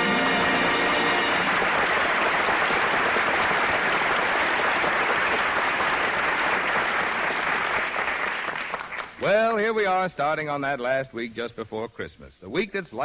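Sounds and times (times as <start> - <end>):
studio audience applauding: 0.0 - 9.6.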